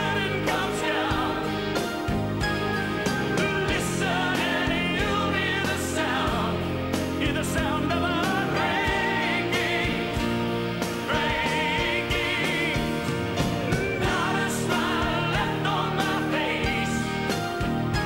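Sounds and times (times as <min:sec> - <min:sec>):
person singing with vibrato: 0:00.0 - 0:01.9, 0:11.0 - 0:17.3
live rock band playing: 0:00.0 - 0:18.0
drum hits: 0:08.3 - 0:18.0.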